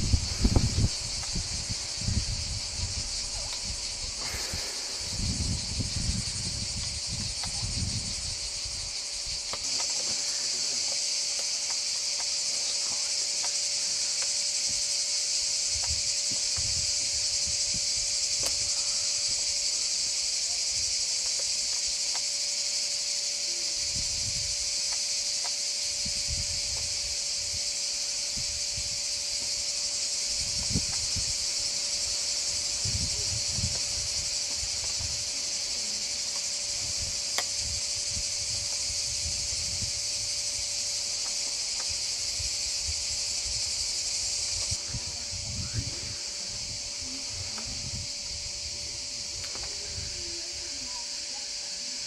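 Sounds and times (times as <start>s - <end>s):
low rumbling on microphone: 0.0s - 9.4s
cicadas buzzing: 0.0s - 52.0s.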